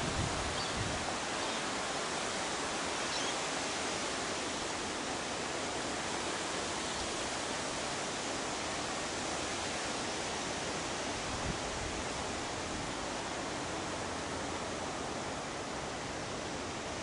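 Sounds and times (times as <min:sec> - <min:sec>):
rushing wind: 0:00.0 - 0:03.0.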